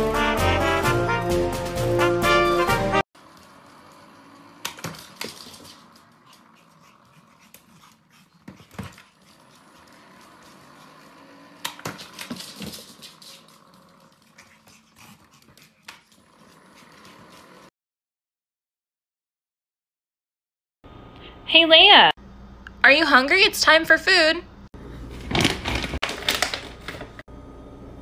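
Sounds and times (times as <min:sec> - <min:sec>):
trumpet swing music: 0:00.0 - 0:03.0.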